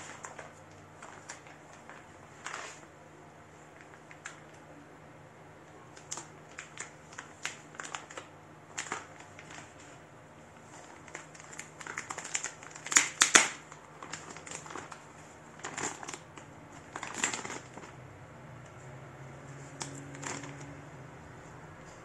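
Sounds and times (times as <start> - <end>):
packaging crinkling: 0.0 - 2.9, 3.6 - 4.6, 5.9 - 18.0, 19.7 - 20.8.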